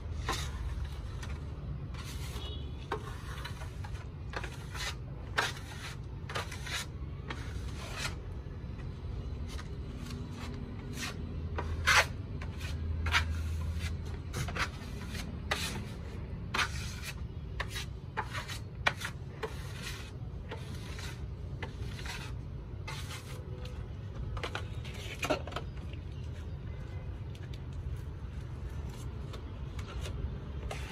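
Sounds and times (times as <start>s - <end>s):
putty knife scraping wall: 0.0s - 8.3s, 9.5s - 23.4s.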